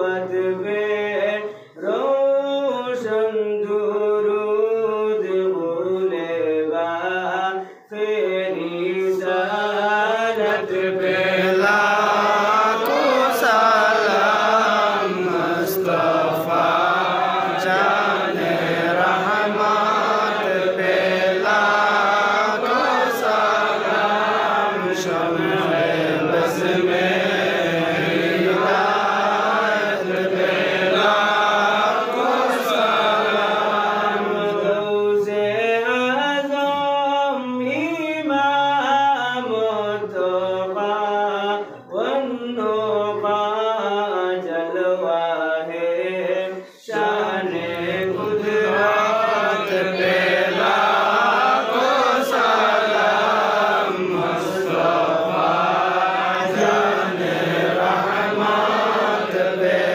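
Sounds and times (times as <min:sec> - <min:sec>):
male voices chanting: 0:06.4 - 0:36.2, 0:44.8 - 0:59.9.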